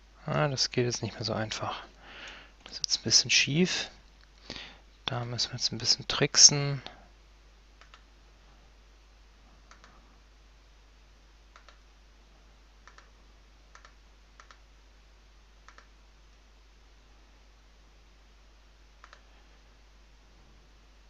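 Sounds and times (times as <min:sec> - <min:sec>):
steady low hum: 0:00.0 - 0:21.0
computer mouse clicks: 0:07.8 - 0:08.1, 0:09.7 - 0:10.0, 0:11.5 - 0:11.9, 0:12.8 - 0:14.6, 0:15.6 - 0:15.9, 0:19.0 - 0:19.3.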